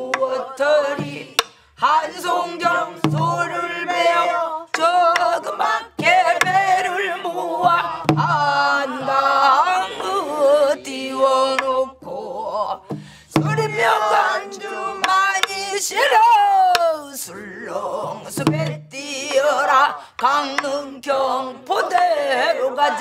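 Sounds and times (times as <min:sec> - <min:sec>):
group singing folk song: 0:00.0 - 0:23.0
barrel drum strokes: 0:02.2 - 0:04.8.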